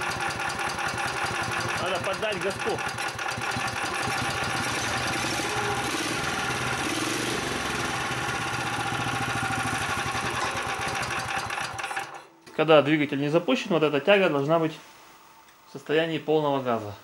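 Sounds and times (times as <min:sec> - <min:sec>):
small four-stroke engine running: 0:00.0 - 0:12.2.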